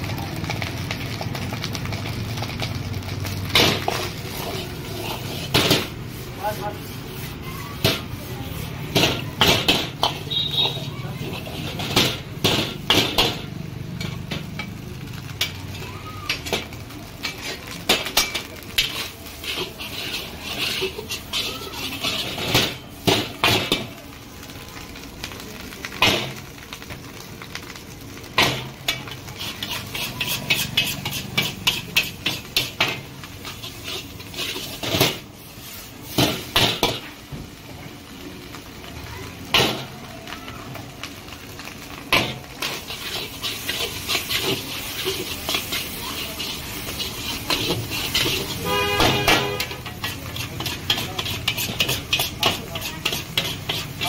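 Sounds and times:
rice sizzling: 0.0 - 54.0
metal spatula clanging on wok: 3.5 - 5.9, 7.8 - 8.1, 8.9 - 15.6, 16.3 - 23.9, 28.4 - 35.2, 42.1 - 54.0.

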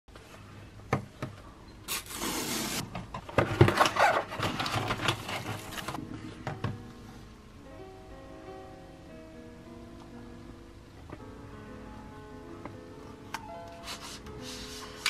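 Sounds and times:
cardboard scraping and rustling: 2.0 - 6.0.

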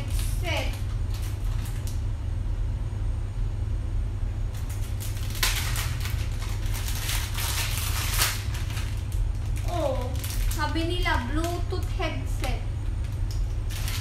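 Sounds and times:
plastic bag crinkling: 0.0 - 2.0, 4.5 - 12.0, 12.9 - 14.0
steady low hum: 0.0 - 14.0.

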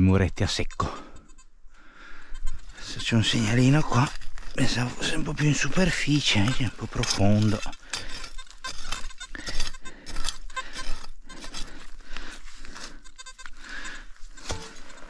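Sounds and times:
shovel digging into soil and leaves: 3.6 - 12.0, 14.3 - 15.0.

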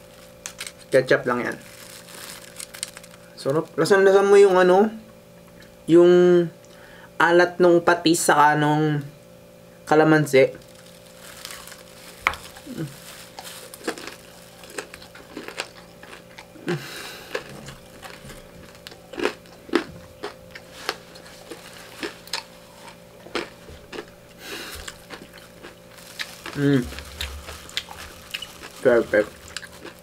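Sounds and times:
crunchy chewing: 0.0 - 3.3, 10.6 - 30.0.

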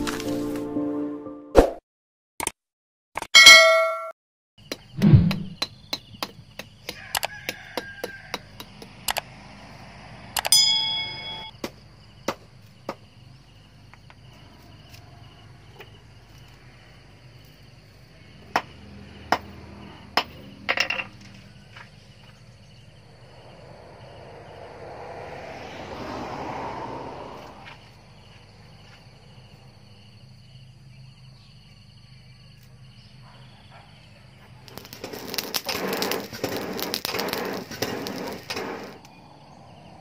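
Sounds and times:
bright metallic ring: 3.4 - 4.1, 10.5 - 11.5
charcoal and twigs snapping: 34.6 - 39.2
short scrape: 35.0 - 39.0.

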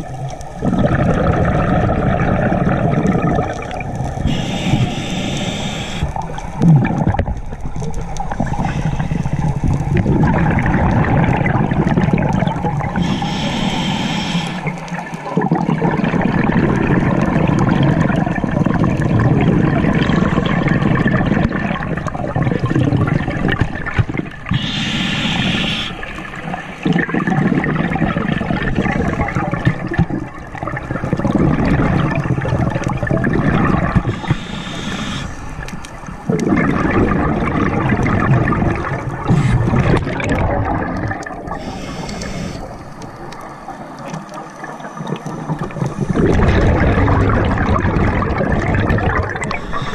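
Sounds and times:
exhaled bubbles underwater: 0.0 - 49.9
regulator inhale hiss: 4.2 - 6.2, 8.5 - 9.6, 13.0 - 15.0, 24.5 - 26.8, 34.0 - 36.0, 39.3 - 39.7, 41.5 - 46.3, 49.4 - 49.9.

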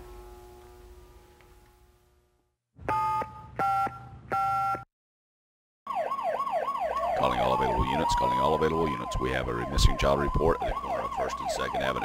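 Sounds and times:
faint hum: 0.0 - 2.5.

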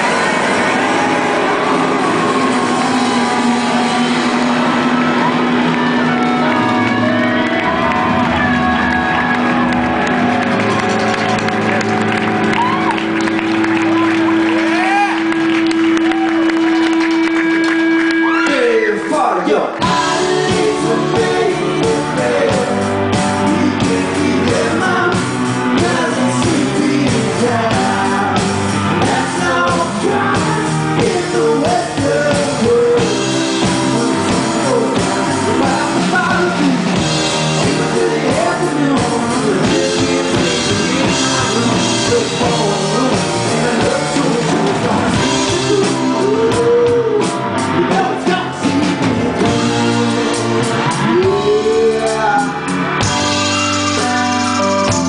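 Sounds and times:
drum kit: 0.0 - 18.4, 19.8 - 55.0
electric guitar: 0.0 - 18.8, 19.8 - 55.0
keyboard: 0.0 - 55.0
male lead vocal: 18.2 - 54.2.

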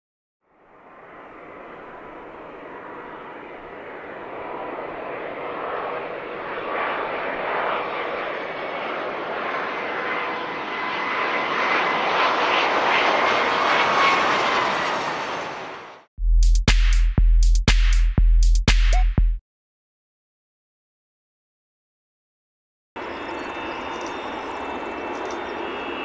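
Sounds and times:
jet engines roaring and whining: 0.6 - 16.1, 23.0 - 26.0
electronic music with drum beat: 16.2 - 19.4.

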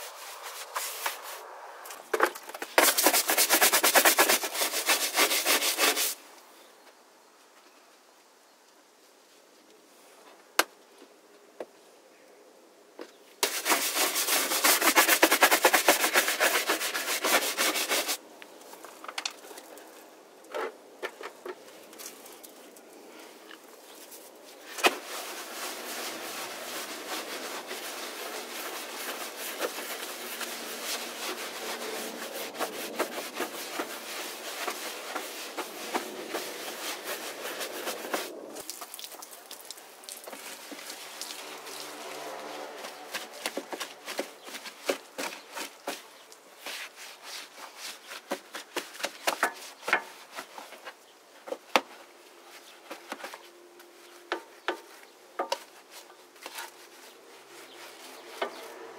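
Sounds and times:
brush scrubbing wet plastic: 0.0 - 1.5, 2.7 - 6.2, 13.4 - 18.2, 23.9 - 51.0, 52.5 - 58.9.

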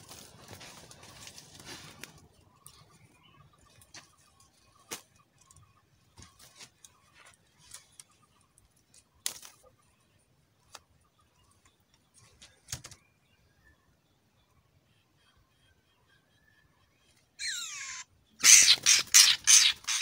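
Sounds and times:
bamboo basket clicks and taps: 9.2 - 9.6.

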